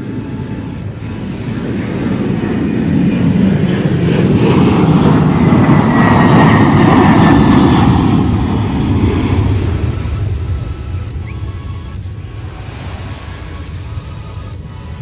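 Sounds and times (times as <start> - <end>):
jet airliner passing overhead: 0.0 - 15.0.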